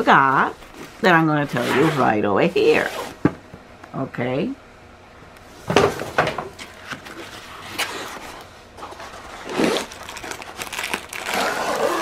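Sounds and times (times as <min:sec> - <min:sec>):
plastic film rustling: 0:06.7 - 0:12.0.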